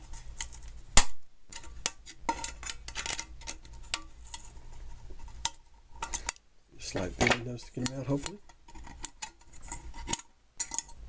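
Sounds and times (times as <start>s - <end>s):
pliers clicking on metal pot: 10.0s - 11.0s.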